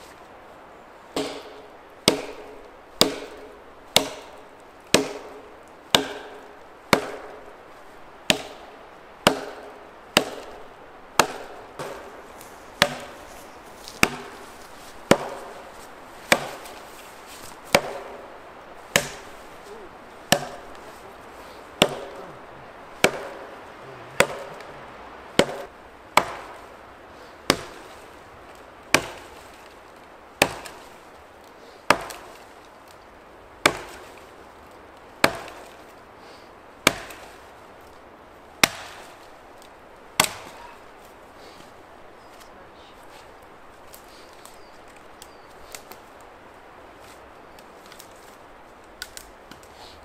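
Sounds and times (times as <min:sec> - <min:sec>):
axe chopping wood: 0:01.2 - 0:07.6, 0:08.2 - 0:22.3, 0:23.0 - 0:24.7, 0:25.3 - 0:26.8, 0:27.4 - 0:28.1, 0:28.9 - 0:29.8, 0:30.4 - 0:31.0, 0:31.9 - 0:32.5, 0:33.6 - 0:34.3, 0:35.2 - 0:35.9, 0:36.8 - 0:37.4, 0:38.6 - 0:39.3, 0:40.2 - 0:41.0.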